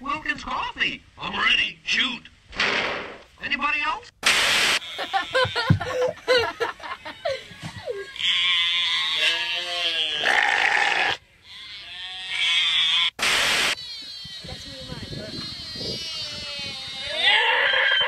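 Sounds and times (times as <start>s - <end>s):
ram bleating: 4.8s - 5.9s, 8.0s - 13.2s, 13.8s - 18.0s
burst of hiss: 13.2s - 13.8s.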